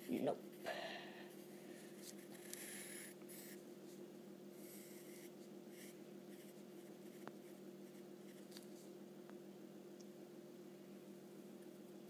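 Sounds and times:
steady low hum: 0.0 - 12.0
pen scratching on paper: 2.0 - 3.6, 4.6 - 8.5.

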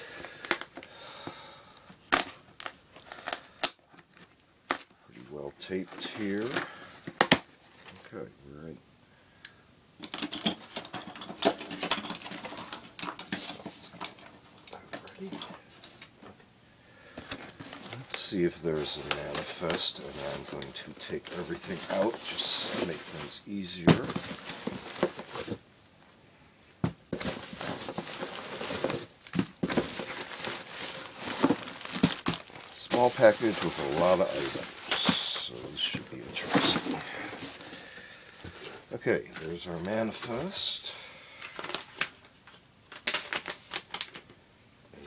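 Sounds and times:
cardboard and tape crackling: 2.1 - 5.0, 5.7 - 8.1, 17.2 - 25.6, 27.1 - 40.8, 41.4 - 44.3
nylon pouches rustling: 5.6 - 8.1, 17.2 - 25.6, 27.1 - 42.3.

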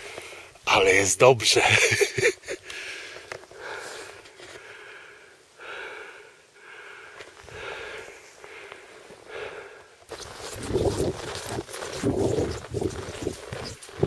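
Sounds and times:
man breathing hard: 2.6 - 10.0.

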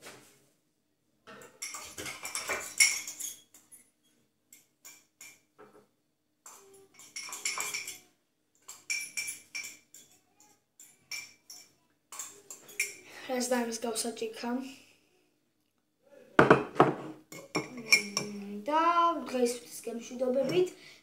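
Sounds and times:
cutlery and dishes clattering: 1.3 - 13.0, 16.4 - 18.3.

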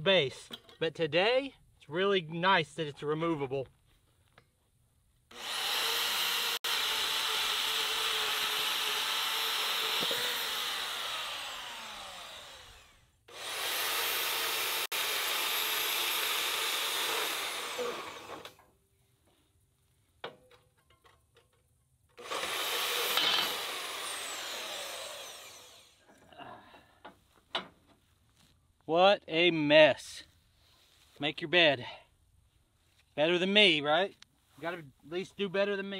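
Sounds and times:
bandsaw motor whine: 5.3 - 18.6, 22.2 - 26.0
light metal clanks and ticks: 20.2 - 22.0.

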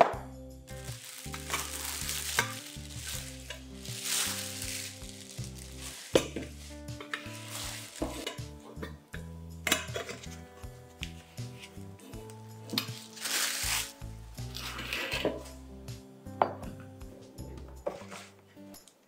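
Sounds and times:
soft background music: 0.0 - 19.0
plastic bag crinkling: 0.8 - 6.3, 7.2 - 8.3, 12.9 - 13.9.

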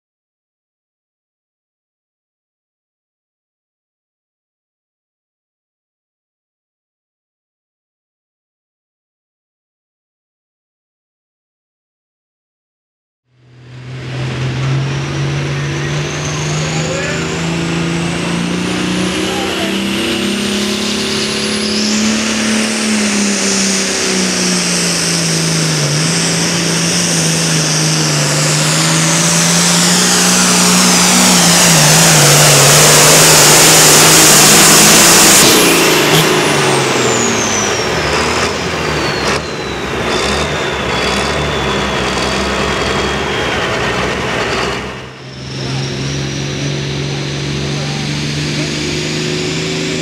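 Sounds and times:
tractor diesel engine roaring: 13.4 - 50.0
turbo whistle whine: 18.6 - 49.2.

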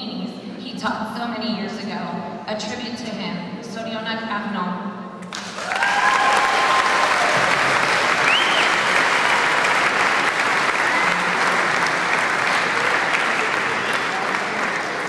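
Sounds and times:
audience applauding: 5.2 - 15.0.

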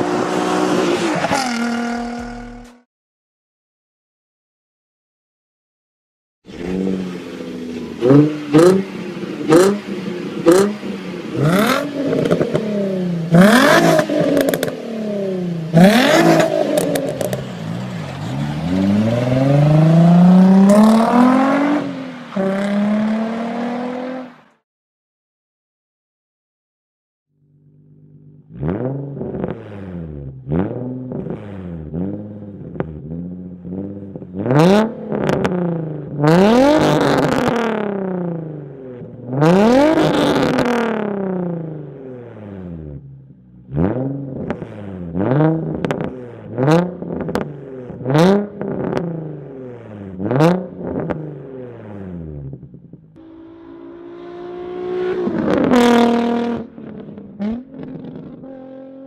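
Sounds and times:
car engine revving: 0.0 - 2.8, 6.5 - 24.6, 27.5 - 59.0
exhaust cracks: 15.7 - 21.4.

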